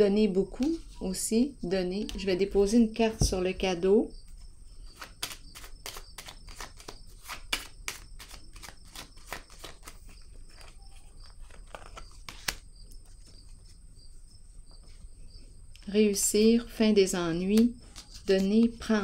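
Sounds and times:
crickets chirping: 0.0s - 19.0s
cards clicking on a table: 5.0s - 12.6s.

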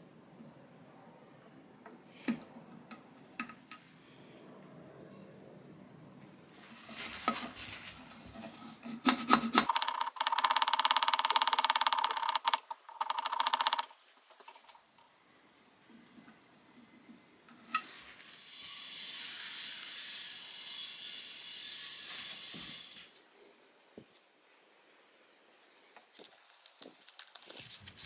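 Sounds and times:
steady hiss: 13.9s - 28.0s.

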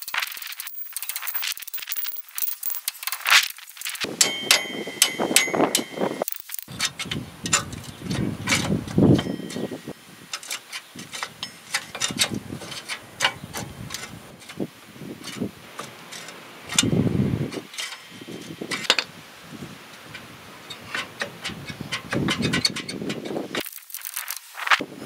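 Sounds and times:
hand ratchet clicking: 0.0s - 9.7s, 15.2s - 19.0s, 20.0s - 24.4s.

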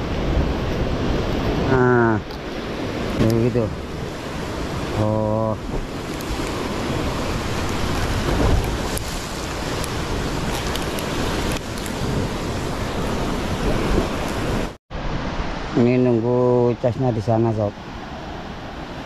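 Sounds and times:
waves washing against rocks: 0.0s - 14.8s
wind noise on microphone: 0.0s - 15.4s.

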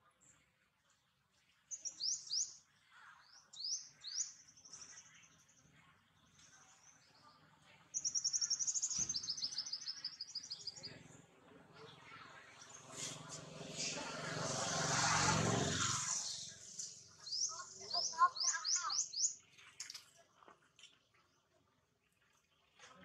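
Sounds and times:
birds chirping: 3.2s - 20.0s.

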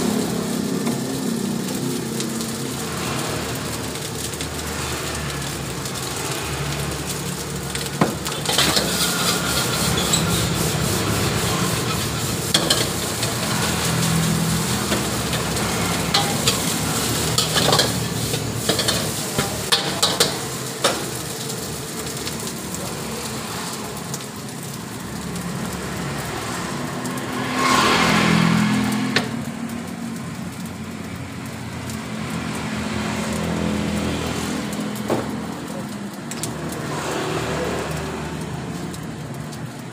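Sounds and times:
rice sizzling in a wok: 0.0s - 39.9s
metal clinking on a wok: 7.7s - 10.6s, 11.4s - 22.4s
metal spatula scraping a wok: 7.7s - 22.4s.

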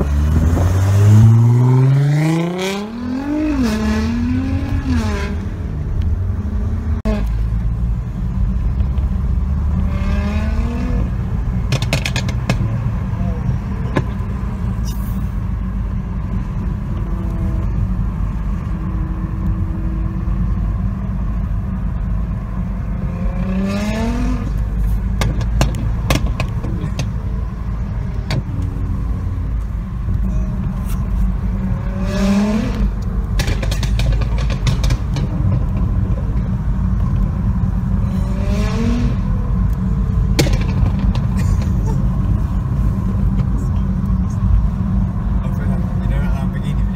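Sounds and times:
car engine revving: 0.0s - 14.8s, 15.5s - 46.9s
road and cabin rumble: 0.0s - 46.9s
exhaust pops and crackles: 11.6s - 12.8s, 24.5s - 27.4s, 32.7s - 37.8s, 39.6s - 42.5s.

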